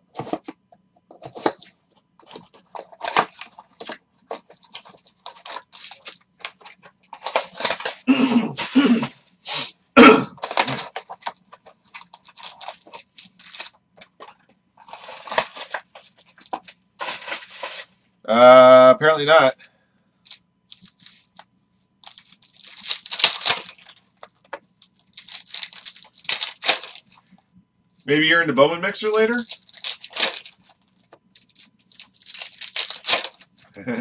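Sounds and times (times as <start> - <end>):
plastic packaging rustling and tearing: 1.1 - 9.2, 10.4 - 18.0, 20.2 - 21.4, 22.0 - 27.4, 29.0 - 33.7.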